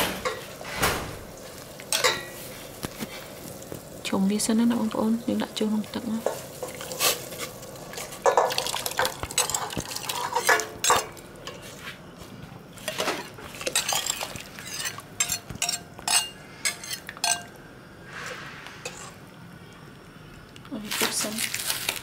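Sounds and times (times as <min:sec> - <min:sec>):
utensils clattering on cookware: 0:00.0 - 0:00.7, 0:01.9 - 0:02.4, 0:06.1 - 0:11.8, 0:12.8 - 0:17.5.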